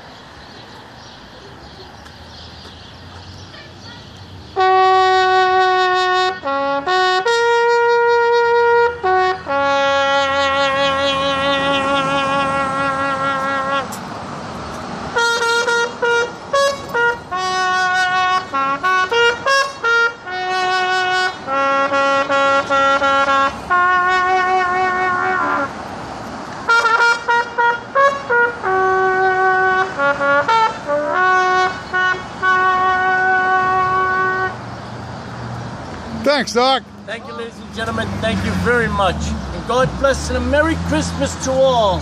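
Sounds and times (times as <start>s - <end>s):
solo trumpet slow melody: 4.6s - 14.0s, 15.2s - 25.8s, 26.7s - 34.6s.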